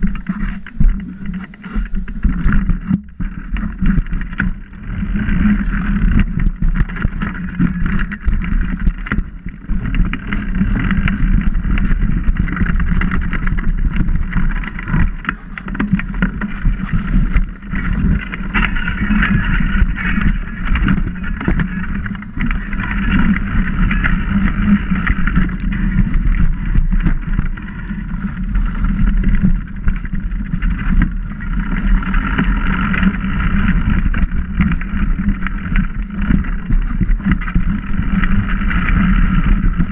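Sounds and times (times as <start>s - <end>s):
bike rattling and knocking: 0.0s - 39.9s
bike tyre rumble on dirt: 0.0s - 39.9s.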